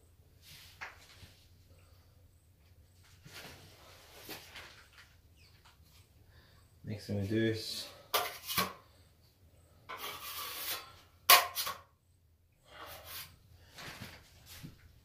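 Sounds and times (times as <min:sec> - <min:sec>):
plastering knives scraping: 0:07.9 - 0:09.0, 0:09.9 - 0:11.9, 0:12.7 - 0:14.6.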